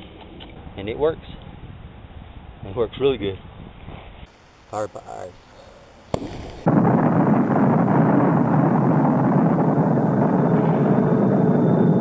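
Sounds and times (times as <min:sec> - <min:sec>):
explosion rumble: 0:06.1 - 0:12.0.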